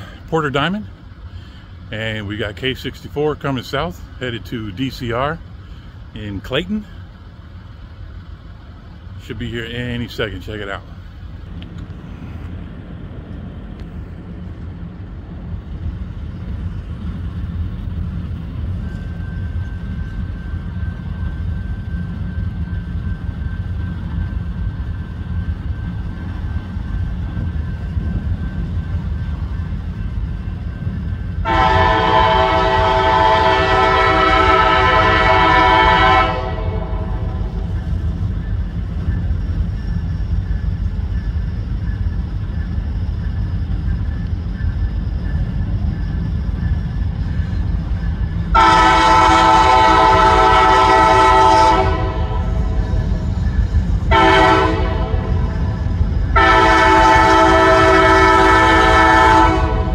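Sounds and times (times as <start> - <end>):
low rumble of train: 0.0 - 59.9
locomotive air horn blasts: 31.4 - 37.6, 48.5 - 53.0, 54.1 - 55.7, 56.3 - 59.9.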